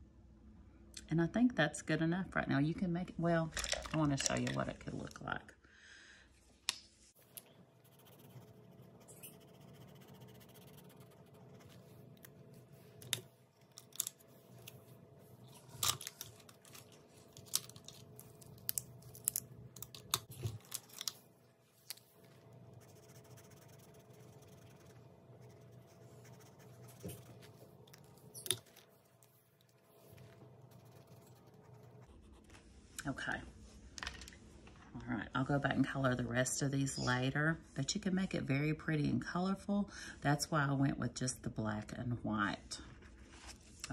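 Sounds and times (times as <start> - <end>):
marker scratching on paper: 7.8 - 12.1, 22.7 - 27.6.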